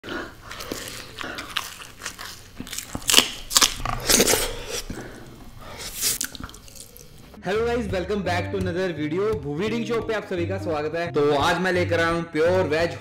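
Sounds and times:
person chewing food: 0.0s - 7.4s
crisp food crunches: 0.4s - 4.8s.

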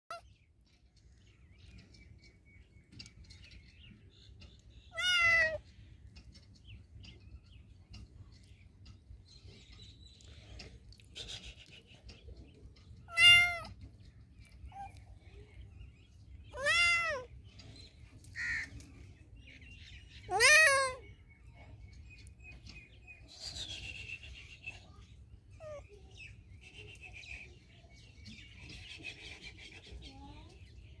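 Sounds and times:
kitten meowing: 5.0s - 5.6s, 13.1s - 13.7s, 16.6s - 17.3s.

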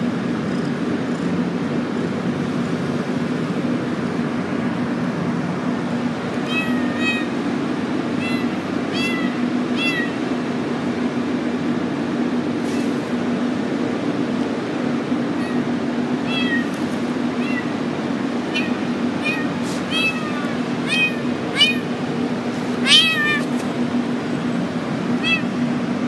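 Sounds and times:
steady background hum: 0.0s - 26.0s
kitten meowing: 6.4s - 7.4s, 8.1s - 10.3s, 15.4s - 17.8s, 18.5s - 23.7s, 25.1s - 25.6s.

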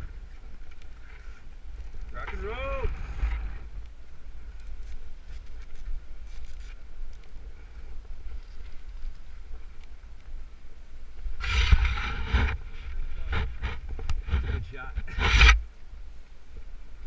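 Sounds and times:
wind rumble: 0.0s - 17.0s
rough rush: 11.4s - 15.7s.

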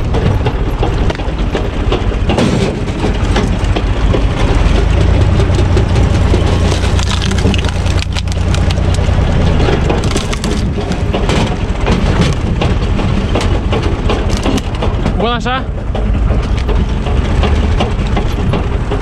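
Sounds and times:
tractor diesel engine running: 0.0s - 19.0s
log splitting and cracking: 1.0s - 15.2s.

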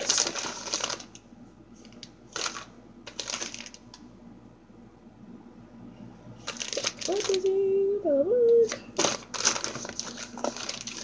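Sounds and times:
plastic clatters: 0.0s - 1.2s, 1.8s - 3.9s, 6.4s - 7.5s, 8.7s - 11.0s.

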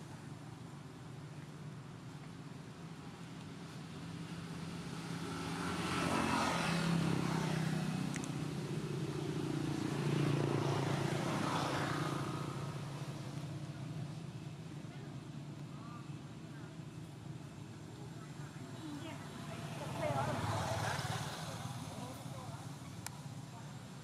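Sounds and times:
motor engine passing: 4.7s - 14.3s, 18.0s - 23.6s.

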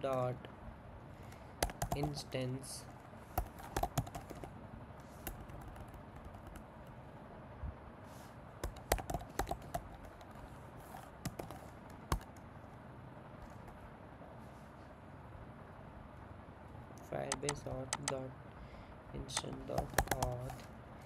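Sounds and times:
keyboard typing: 1.6s - 2.4s, 3.3s - 7.0s, 8.6s - 12.5s, 17.2s - 18.2s, 19.2s - 20.7s.

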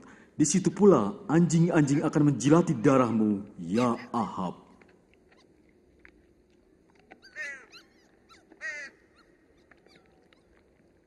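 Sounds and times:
faint outdoor ambience: 0.0s - 11.0s
dogs high-pitched cries: 7.2s - 10.5s.

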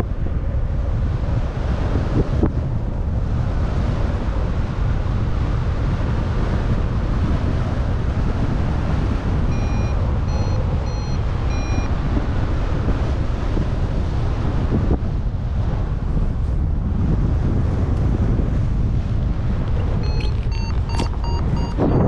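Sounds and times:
airflow rushing over microphone: 0.0s - 22.0s
short beeps: 9.5s - 11.9s, 20.0s - 22.0s.

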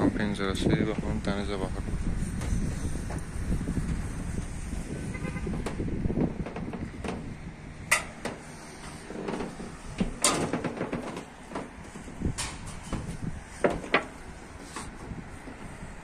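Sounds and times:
steel roofing sheets knocking: 5.4s - 15.8s.

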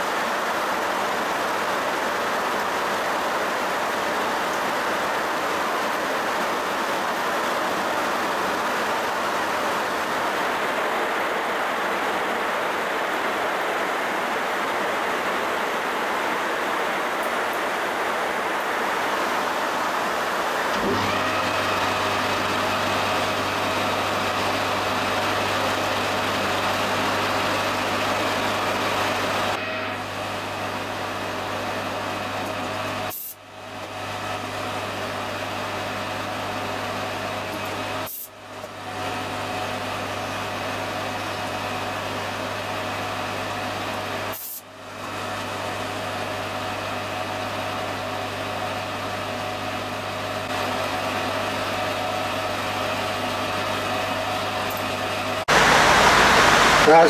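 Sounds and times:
heavy rain on shed roof: 0.0s - 57.0s
metal lathe humming: 50.2s - 57.0s.

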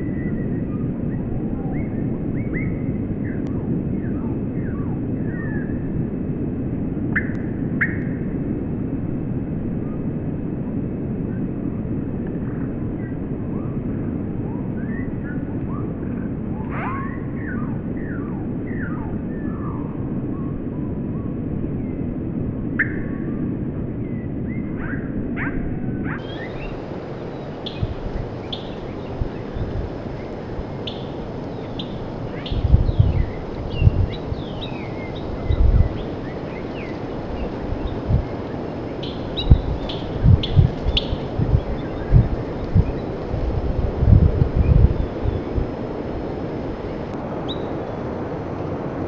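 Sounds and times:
steady low rumble: 0.0s - 49.0s
small birds chirping: 24.1s - 48.0s.

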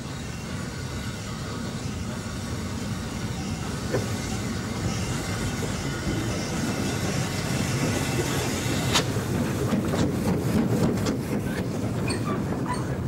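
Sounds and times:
steam locomotive hiss and rumble: 0.0s - 13.0s
wheels clicking over rail joints: 5.1s - 13.0s.

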